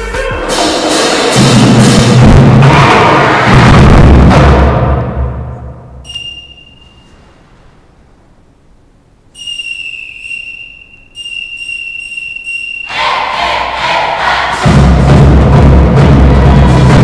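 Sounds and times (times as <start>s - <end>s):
whistle blasts: 6.0s - 7.2s, 9.3s - 14.0s.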